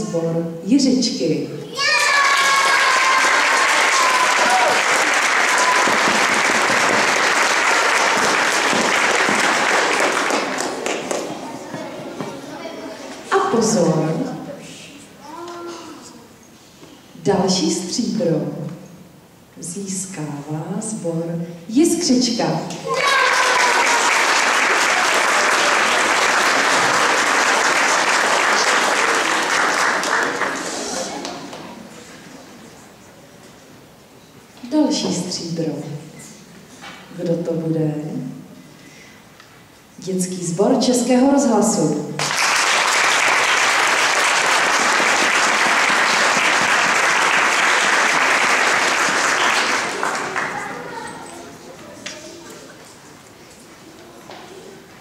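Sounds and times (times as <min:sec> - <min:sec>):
audience applauding: 0:01.8 - 0:11.5, 0:22.9 - 0:31.7, 0:42.2 - 0:51.0.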